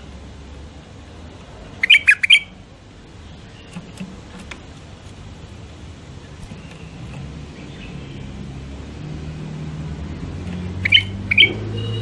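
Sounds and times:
bird chirping: 1.8 - 2.6, 3.2 - 4.6, 6.2 - 8.6, 10.6 - 12.0.

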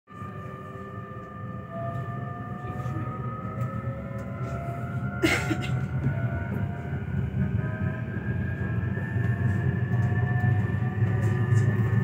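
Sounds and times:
train rumble: 0.1 - 12.0.

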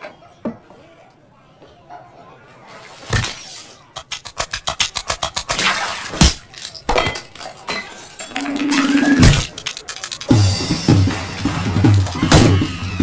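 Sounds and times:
dishes and cutlery clattering: 6.2 - 10.4.

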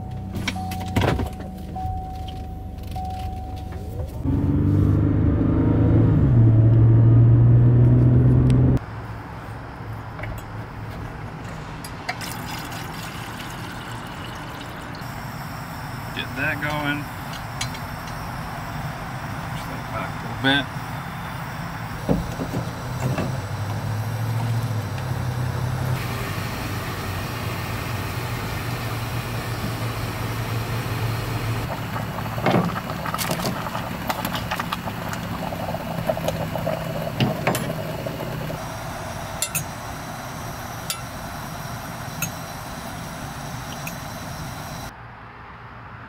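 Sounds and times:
low mechanical hum: 10.2 - 44.9.

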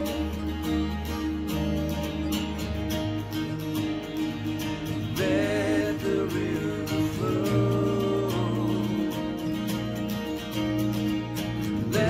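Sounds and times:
strummed acoustic guitar: 0.0 - 12.0
person singing: 5.0 - 10.1.

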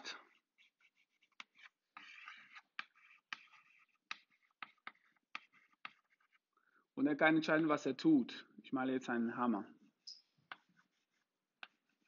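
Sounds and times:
chalk tapping on blackboard: 0.0 - 6.4, 10.4 - 12.0
chalk scratching on blackboard: 0.0 - 6.5, 9.9 - 12.0.

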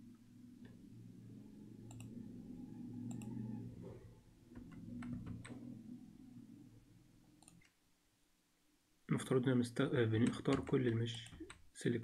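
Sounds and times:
low steady hum: 0.0 - 12.0
computer mouse clicks: 1.9 - 2.2, 3.1 - 3.4, 4.6 - 5.6, 7.4 - 7.8.

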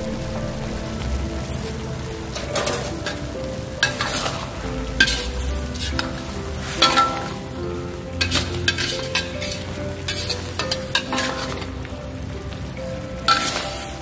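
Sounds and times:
food sizzling: 0.0 - 14.0
metal spatula scraping a wok: 8.2 - 11.7, 13.3 - 13.9.

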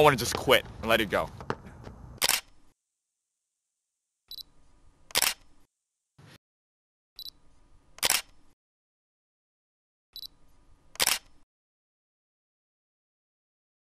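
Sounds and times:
camera shutter clicking: 2.2 - 2.6, 5.1 - 5.5, 8.0 - 8.4, 11.0 - 11.4.

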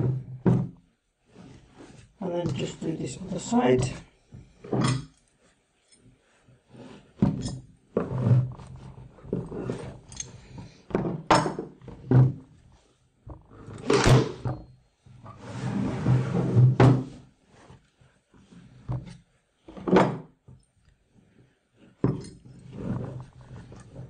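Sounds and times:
wooden frame and tools knocking: 0.0 - 0.8.

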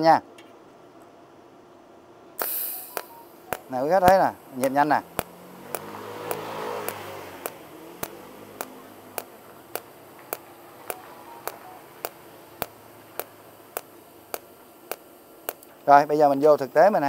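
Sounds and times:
welder sharp clicks: 2.4 - 15.8.

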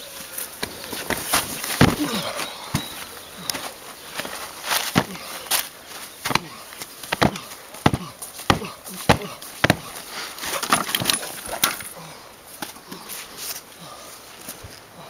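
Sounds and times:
body falling onto ground: 1.0 - 11.9
wrestling blows and slams: 1.3 - 3.0, 4.9 - 5.2, 7.1 - 11.9.

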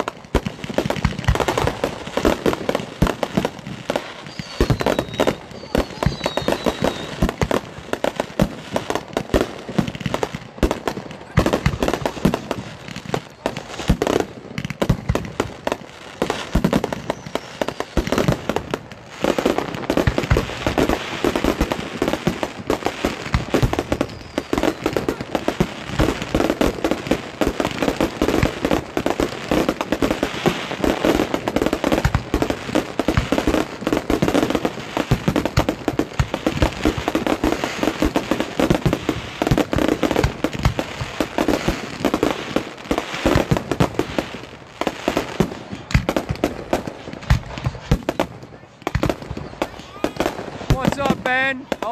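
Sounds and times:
crackling firework stars: 0.0 - 51.9
firework shells bursting: 3.0 - 7.6.

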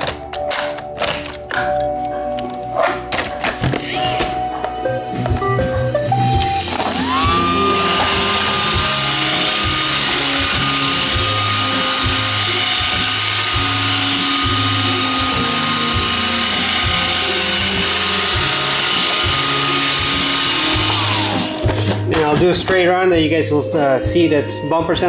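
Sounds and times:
background music with beat: 0.0 - 25.0
robot vacuum whining: 3.8 - 4.4, 6.6 - 22.2.

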